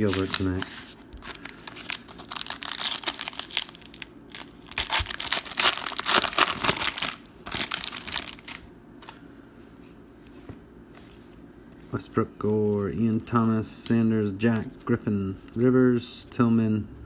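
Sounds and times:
foil wrappers tearing and crinkling: 0.0s - 8.7s.

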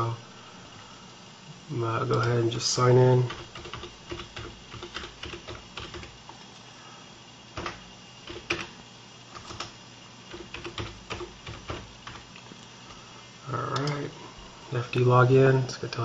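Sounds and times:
keyboard keystrokes: 3.3s - 6.1s, 7.6s - 8.7s, 9.4s - 12.2s.

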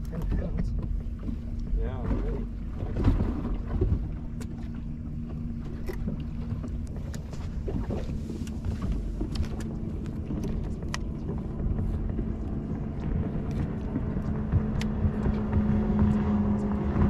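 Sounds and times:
electric trolling motor hum: 0.0s - 17.0s
footsteps on boat deck: 0.0s - 17.0s
water against hull: 0.0s - 17.0s
wind on microphone: 6.0s - 17.0s.

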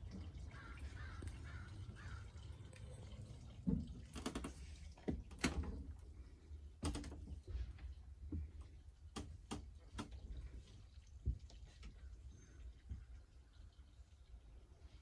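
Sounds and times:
faint calls: 0.3s - 3.4s.

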